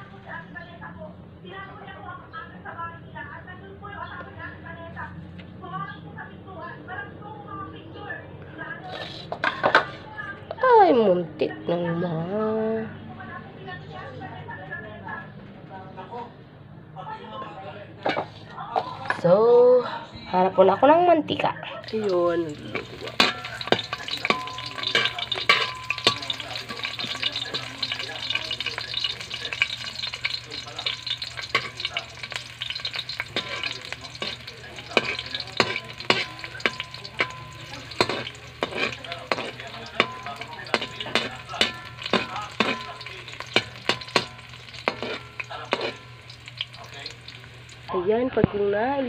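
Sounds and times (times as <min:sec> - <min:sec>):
garlic and onion sizzling in oil: 0:08.9 - 0:10.1, 0:18.0 - 0:19.2, 0:21.8 - 0:48.0
metal spatula scraping wok: 0:08.9 - 0:10.1, 0:18.0 - 0:19.2, 0:21.8 - 0:47.9.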